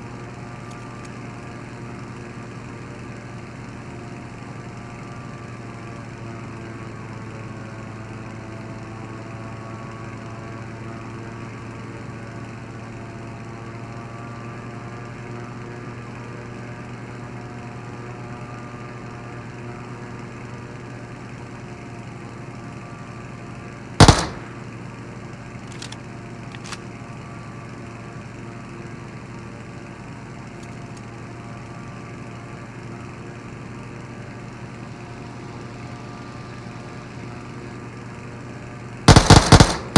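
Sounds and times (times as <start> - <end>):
sharp clicks: 24.0 - 24.6, 25.7 - 26.8, 39.1 - 39.9.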